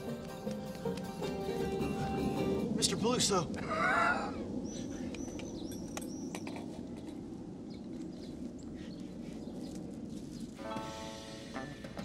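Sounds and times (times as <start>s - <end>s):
birds chirping: 0.0s - 12.0s
low outdoor background noise: 0.0s - 12.0s
sustained musical chord: 10.6s - 12.0s.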